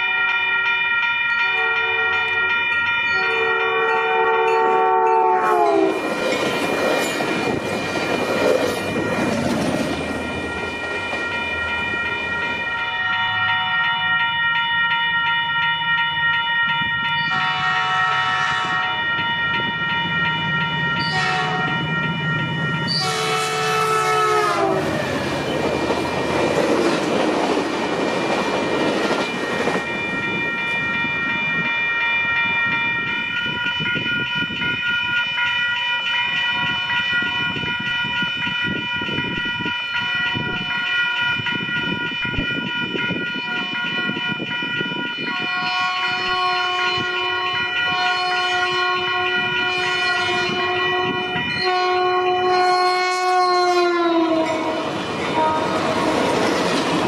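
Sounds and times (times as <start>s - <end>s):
crossing bell ringing: 0.0s - 57.0s
locomotive horn blasts: 1.5s - 2.4s, 3.2s - 6.0s, 17.2s - 22.1s, 22.8s - 25.0s, 45.2s - 56.4s
train cars rumbling by: 3.5s - 16.0s, 16.8s - 34.9s, 36.3s - 57.0s.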